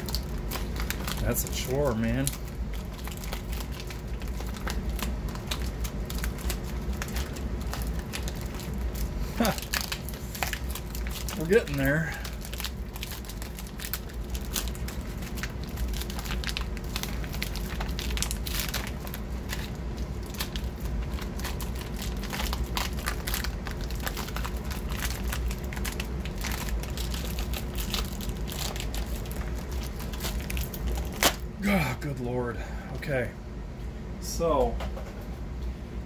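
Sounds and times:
plastic bag crinkling: 0.0s - 31.4s.

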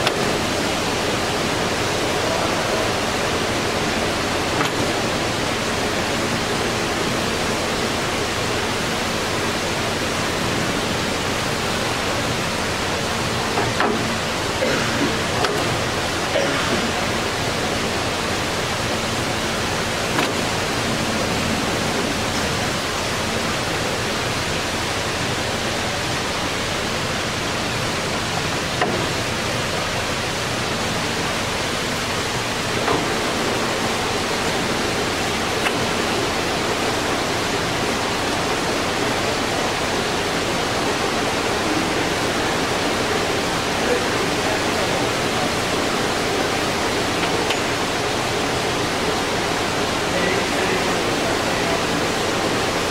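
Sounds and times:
lathe gearing hiss and hum: 0.0s - 52.9s.

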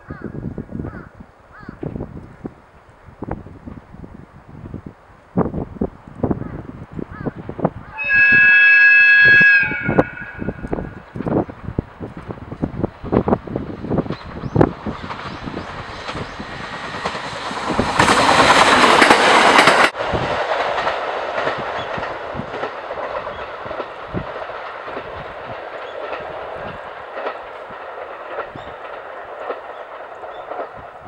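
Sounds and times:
electric train passing: 1.2s - 31.0s
wheels clacking over rail joints: 10.0s - 31.0s.

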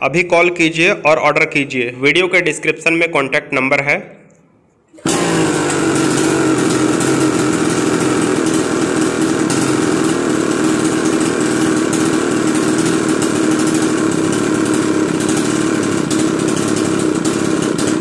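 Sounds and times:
chainsaw engine idling: 5.0s - 18.0s.

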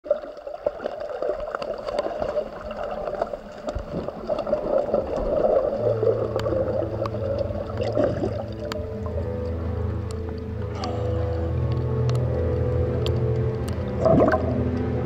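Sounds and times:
muffled underwater water noise: 0.0s - 15.0s
low sustained music note: 5.6s - 15.0s.

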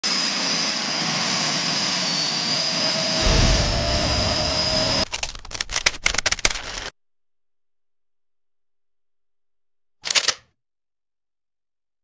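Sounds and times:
jet engine roaring: 0.1s - 5.6s
deep boom: 3.2s - 5.6s.

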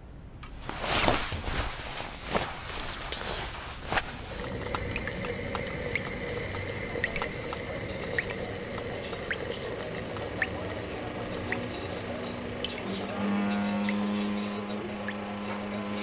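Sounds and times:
steady low hum: 0.0s - 16.0s
water hissing and bubbling in kettle: 2.7s - 15.3s
small pops and drips: 4.2s - 13.0s.

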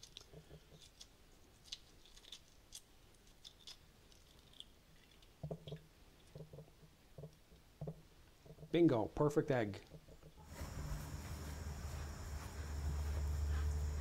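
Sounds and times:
eggshell crackling as peeled: 0.0s - 6.5s
small wet squishes: 0.0s - 6.6s.

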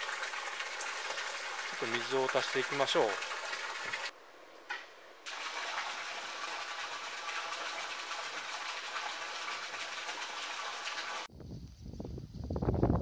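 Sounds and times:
water pouring and splashing: 0.0s - 4.1s, 5.3s - 11.3s.

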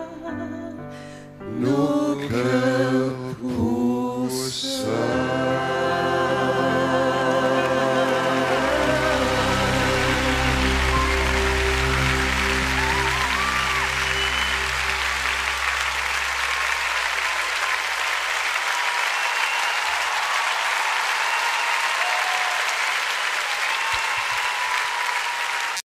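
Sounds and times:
audience applauding: 4.8s - 25.8s
held musical chord ringing: 5.8s - 17.5s.

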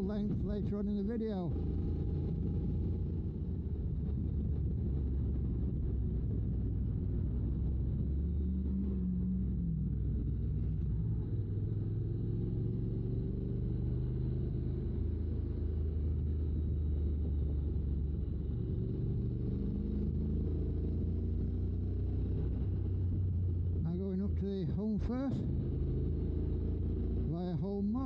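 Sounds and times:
wind rumble: 0.0s - 11.8s, 15.6s - 27.9s
motorcycle engine running: 0.0s - 28.0s.

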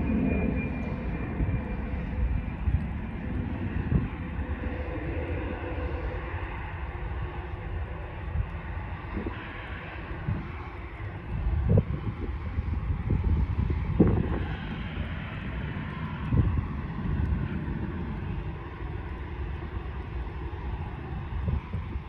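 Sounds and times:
jet engines rumbling: 0.0s - 22.0s
wind buffeting microphone: 0.0s - 22.0s.

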